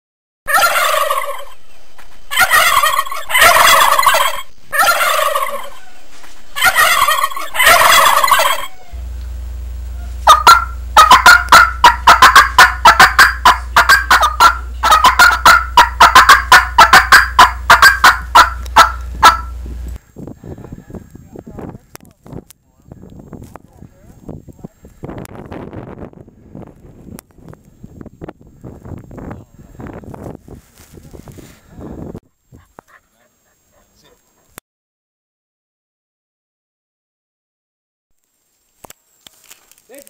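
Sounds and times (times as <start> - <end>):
turkey gobbling: 0.5 - 1.6, 2.3 - 9.0, 9.9 - 19.6
low hum: 1.2 - 20.3.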